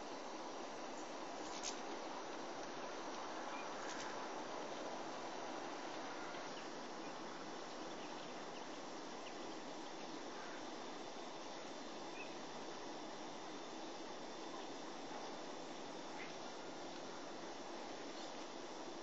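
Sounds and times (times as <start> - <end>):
outdoor background hiss: 0.0 - 19.0
small birds chirping: 1.0 - 5.0, 5.9 - 10.8, 11.4 - 12.5, 14.0 - 18.6.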